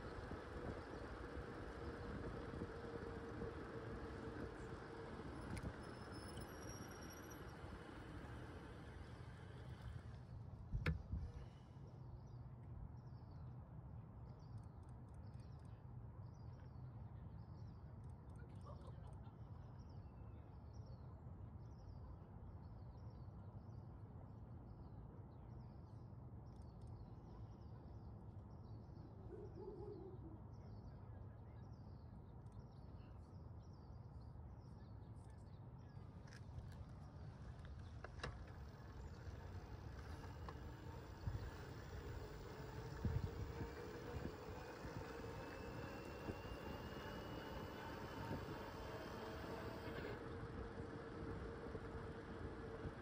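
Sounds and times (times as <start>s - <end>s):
faint high chirps: 0.0s - 9.9s.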